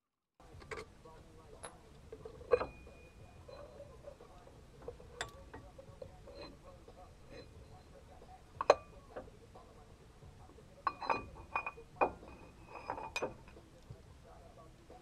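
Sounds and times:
metal tools clinking: 1.5 - 8.0, 10.8 - 13.6.

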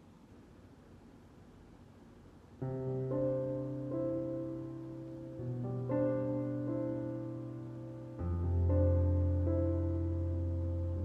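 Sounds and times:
piano chords: 2.6 - 11.0.

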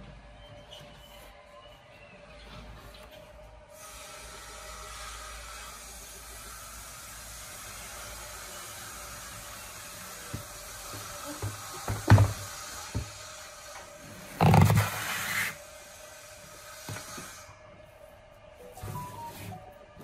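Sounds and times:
steady hiss: 3.7 - 14.2
knocks on wooden workbench: 11.4 - 13.1.

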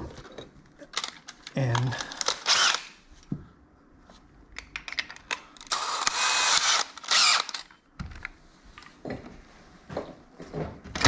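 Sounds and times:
drill clicks: 2.2 - 2.9, 5.6 - 7.7
drill motor spinning: 2.4 - 2.9, 5.7 - 7.7.

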